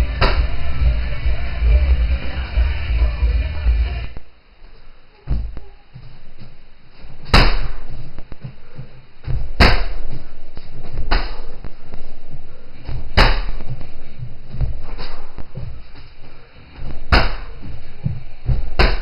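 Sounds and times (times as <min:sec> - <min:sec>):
thuds on punching bag: 0:07.2 - 0:08.5, 0:09.2 - 0:10.2, 0:10.9 - 0:11.5, 0:12.9 - 0:13.8, 0:17.0 - 0:19.0.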